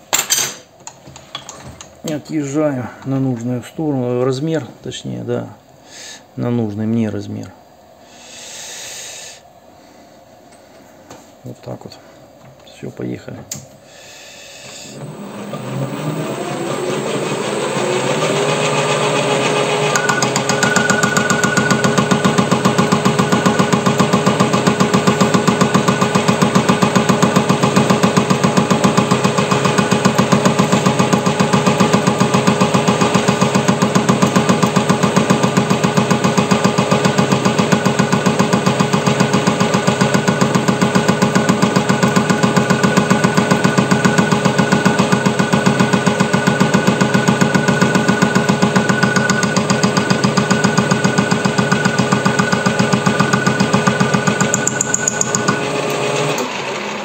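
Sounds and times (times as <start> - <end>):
metal lathe knocking cut: 15.1 - 57.0
thin whine: 19.8 - 24.0.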